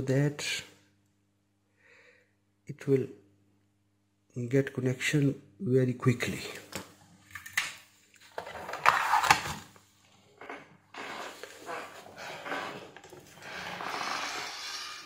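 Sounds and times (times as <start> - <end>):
knocks and scrapes on workbench: 10.4 - 15.0.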